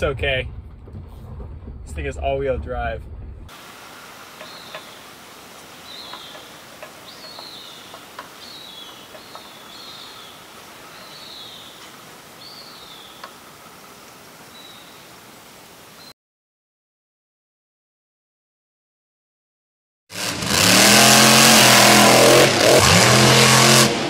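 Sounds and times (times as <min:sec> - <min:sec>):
steady hiss: 0:03.5 - 0:16.1
bird calling: 0:04.0 - 0:16.1.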